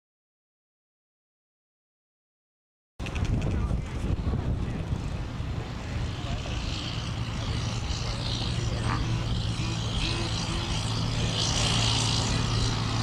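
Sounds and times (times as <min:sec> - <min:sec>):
diesel truck engine running: 0:04.2 - 0:13.0.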